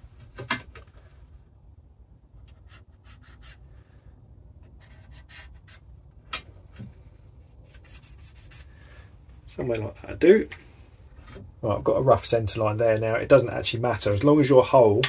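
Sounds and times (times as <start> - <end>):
marker pen scratching on metal: 4.7 - 5.8.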